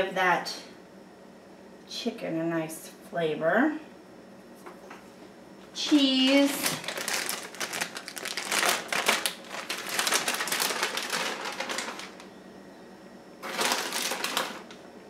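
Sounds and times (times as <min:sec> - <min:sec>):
plastic bag crinkling: 0:05.8 - 0:12.3, 0:13.4 - 0:14.8.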